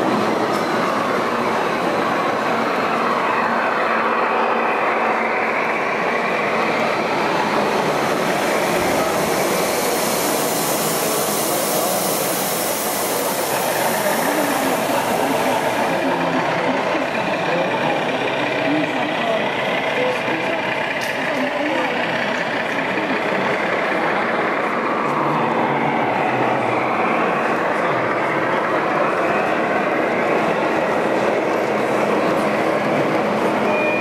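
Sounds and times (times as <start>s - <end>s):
model train rolling on track: 0.0s - 34.0s
wheels clickety-clack: 16.6s - 25.3s.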